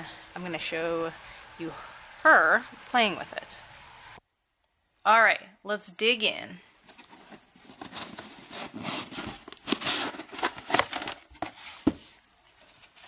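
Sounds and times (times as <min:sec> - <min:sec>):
cardboard box tearing open: 0:07.7 - 0:11.9.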